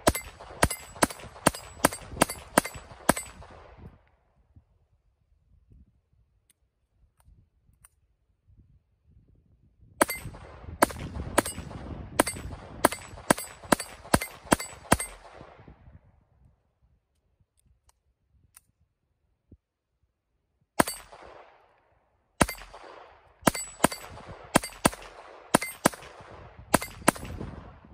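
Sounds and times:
pistol shots: 0.0 - 3.7, 10.0 - 15.6, 20.8 - 21.7, 22.4 - 27.4.

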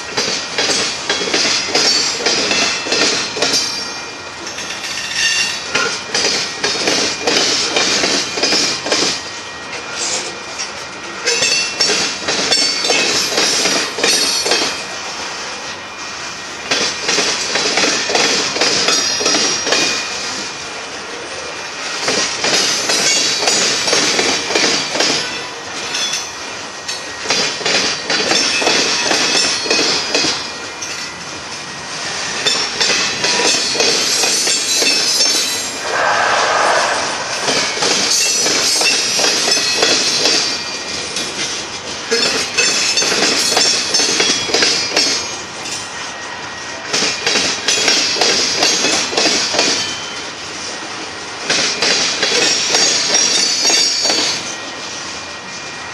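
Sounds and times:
train wheels clacking over rail joints: 0.0 - 15.0, 16.6 - 20.6, 21.8 - 45.9, 46.8 - 54.6
high wheel squeal: 34.5 - 39.8.

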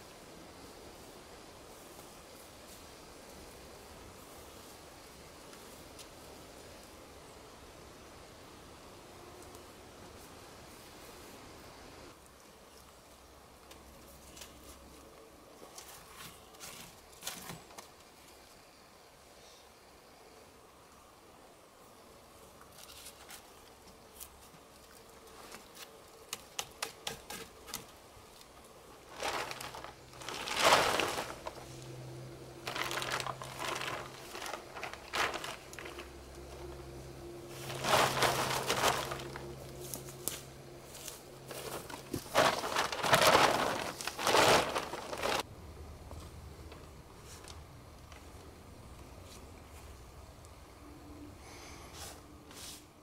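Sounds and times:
plastic tarp crinkling: 28.9 - 31.8, 32.5 - 36.7, 37.4 - 40.1, 41.4 - 45.5.

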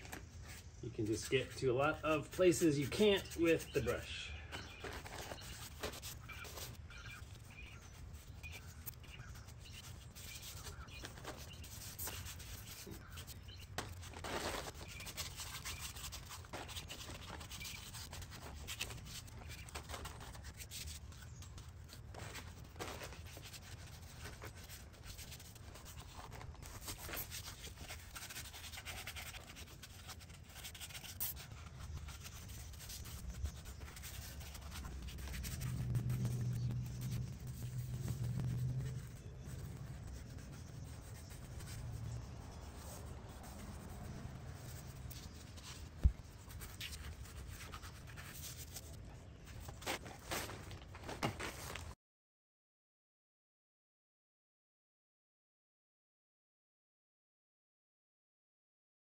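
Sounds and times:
scrubber rubbing on metal: 0.4 - 49.0
low background rumble: 31.5 - 47.4.

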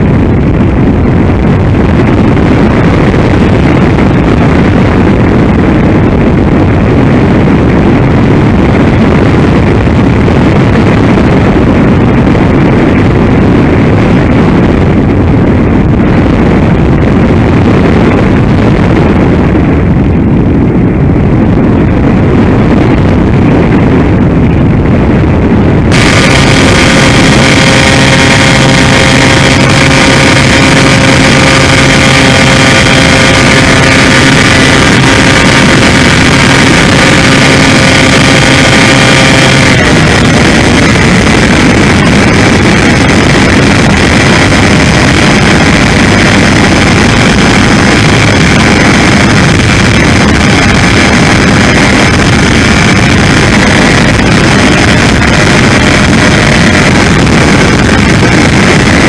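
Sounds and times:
wind rush: 0.0 - 59.0
electric motor and propeller whining: 19.0 - 59.0.

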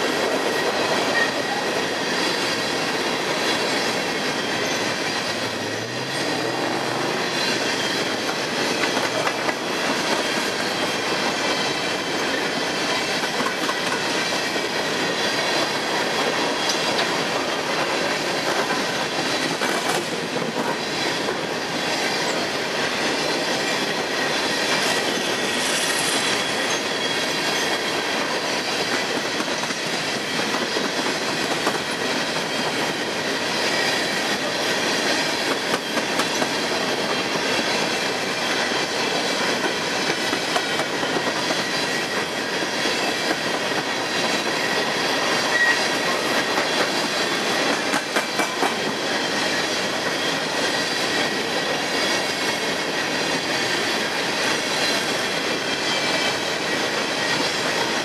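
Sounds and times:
train wheels rumbling on rails: 0.0 - 58.0
wheels clicking over rail joints: 3.2 - 22.4, 26.6 - 49.3
faint wheel squeal: 44.6 - 45.9.

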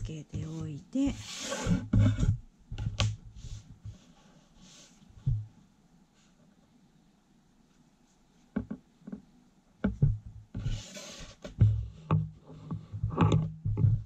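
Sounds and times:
ruler sliding across paper: 1.1 - 2.3, 3.4 - 5.1, 10.6 - 11.6.

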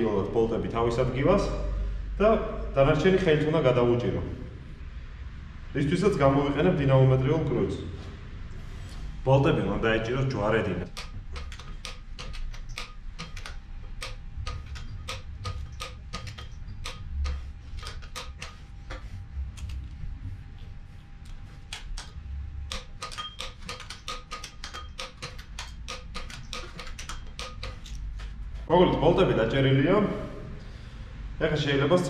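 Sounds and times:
torque wrench clicking: 10.8 - 19.8, 21.2 - 28.3.

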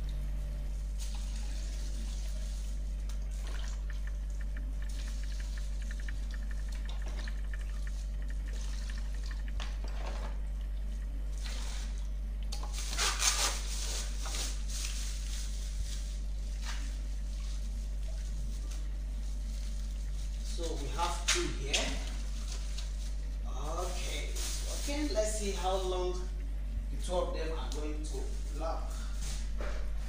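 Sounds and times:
steady low hum: 0.0 - 30.0
water splashing in plastic basin: 1.0 - 13.0
plastic bag crackling: 12.7 - 26.2.

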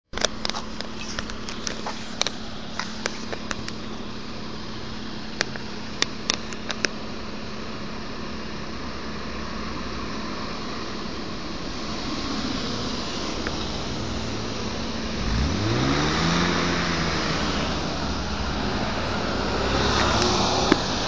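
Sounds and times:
cars passing on road: 0.2 - 21.0
car engine revving: 9.7 - 21.0.

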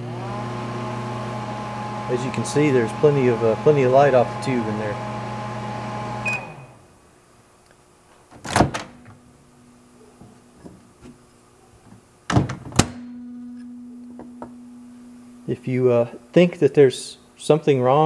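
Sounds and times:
microwave oven humming: 0.0 - 7.3, 12.4 - 16.1
short microwave beep: 6.2 - 6.8.

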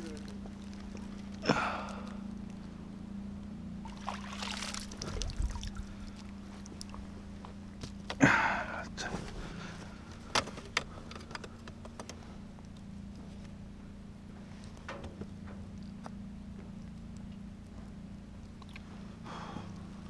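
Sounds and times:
water pouring off net: 3.9 - 6.2.

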